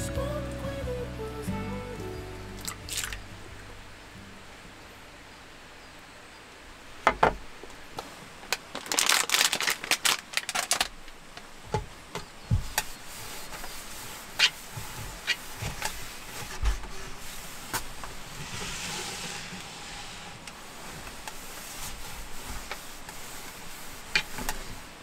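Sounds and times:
paper towel wiping table: 12.5 - 25.0.

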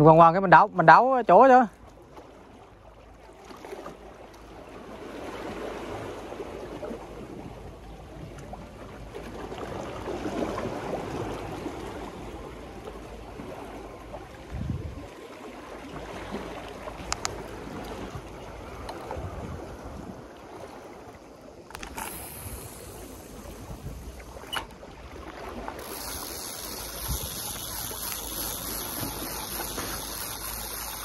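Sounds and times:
water sloshing against seawall: 0.0 - 31.0
sharp clicks: 21.7 - 23.6.

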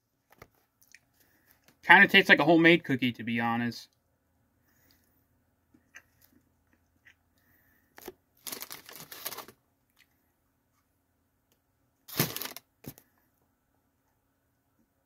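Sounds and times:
cookie rustling and crackling: 7.9 - 10.1.

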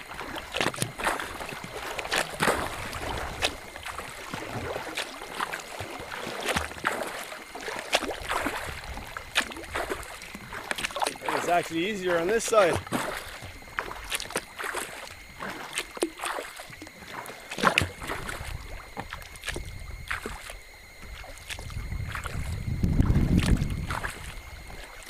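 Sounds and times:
paddle dips and splashes: 0.0 - 25.0
wind rumble on microphone: 2.4 - 4.8, 8.2 - 10.5, 21.0 - 25.0.

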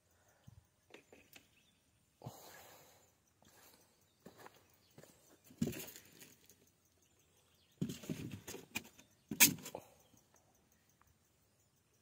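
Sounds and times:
handling rustling and knocking: 7.8 - 9.7.

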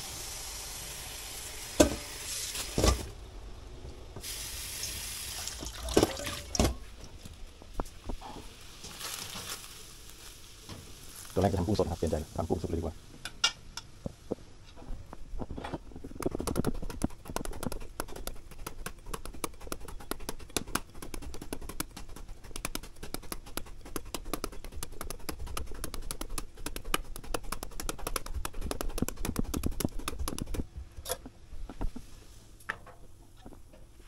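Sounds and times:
knife chopping papaya: 16.4 - 30.5.

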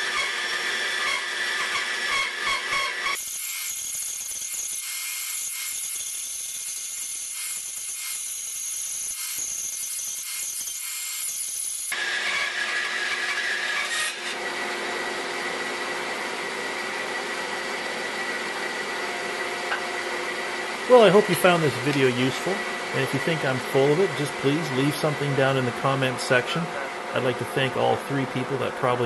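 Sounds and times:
bandsaw blade cutting wood: 0.0 - 15.1, 20.9 - 26.6
bandsaw humming: 0.0 - 29.0.

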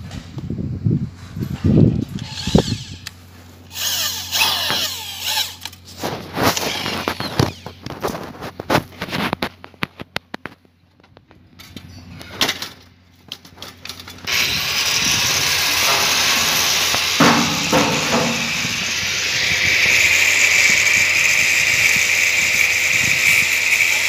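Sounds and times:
cordless drill driving screws: 2.2 - 3.1, 3.7 - 5.8, 14.2 - 24.0
high whine: 14.3 - 21.9.

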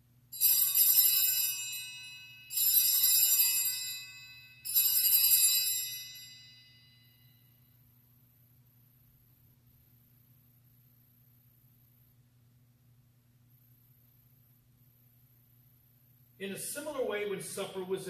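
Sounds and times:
altar bells ringing: 0.4 - 7.4.

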